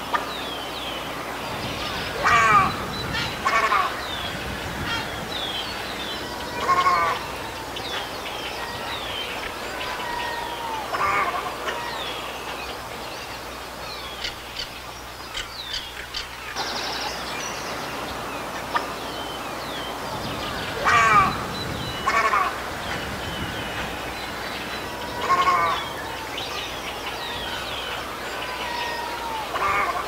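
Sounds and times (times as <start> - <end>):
small birds chirping: 0.2 - 29.9
heron harsh calls: 1.8 - 4.1, 20.6 - 22.7, 24.9 - 26.2.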